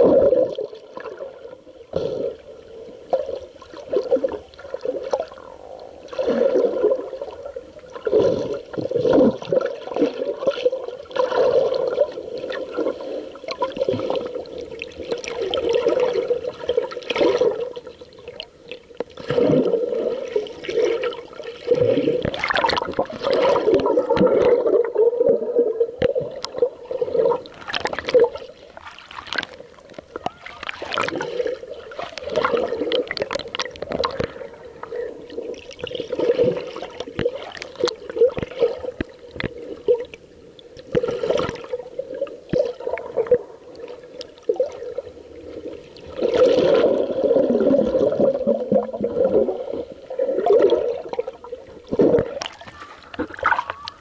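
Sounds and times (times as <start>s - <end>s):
gurgling air bubbles: 0.0s - 18.4s, 19.2s - 28.5s, 30.6s - 40.1s, 40.8s - 54.0s
muffled underwater sloshing: 0.0s - 54.0s.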